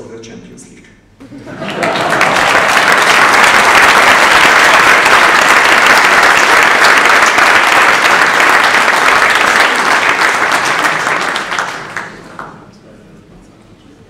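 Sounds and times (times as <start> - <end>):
audience applause: 1.3 - 12.5.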